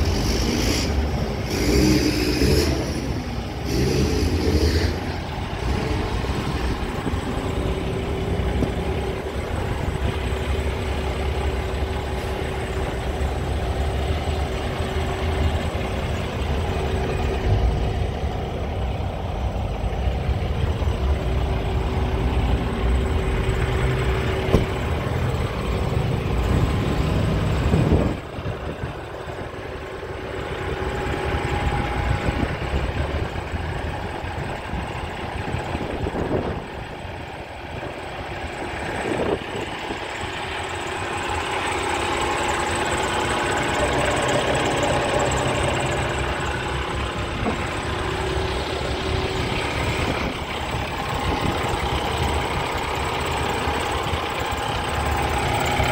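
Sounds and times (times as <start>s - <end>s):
truck diesel engine idling: 0.0s - 55.9s
sharp thump: 24.4s - 24.8s.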